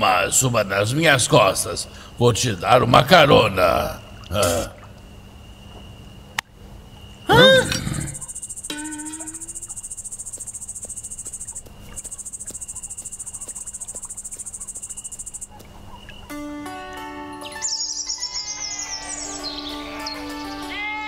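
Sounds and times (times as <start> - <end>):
crickets chirring: 0.0 - 21.0
sustained musical notes: 16.3 - 21.0.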